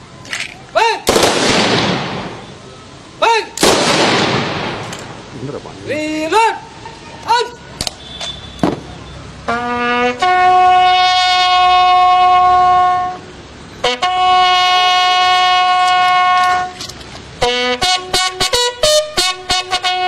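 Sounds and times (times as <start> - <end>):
horn notes: 9.4 - 20.0.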